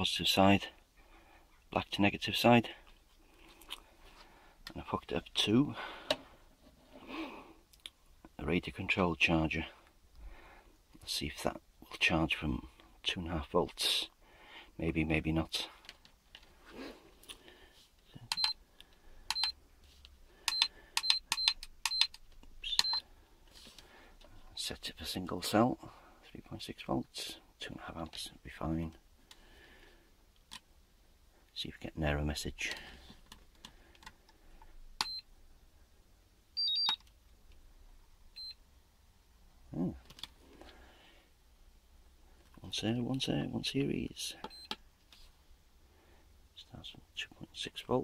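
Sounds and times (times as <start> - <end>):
short high beeps: 36.6 - 37.0.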